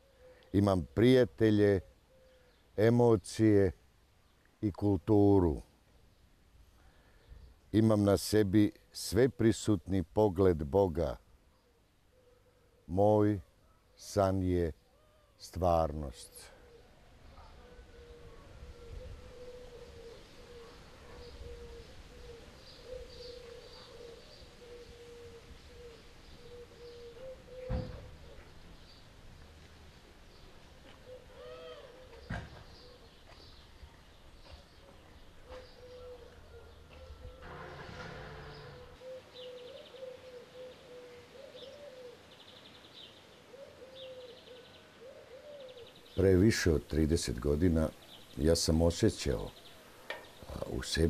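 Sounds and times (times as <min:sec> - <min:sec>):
dove cooing: 0:16.4 - 0:29.0, 0:30.3 - 0:33.5, 0:34.3 - 0:46.7
low thump: 0:27.6 - 0:28.2.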